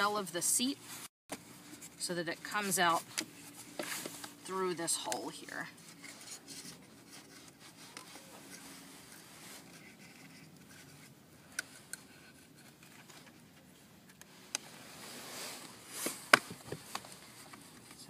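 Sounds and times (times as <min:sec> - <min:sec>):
fabric strap scraping plastic: 0:05.7 - 0:13.5, 0:14.2 - 0:18.0.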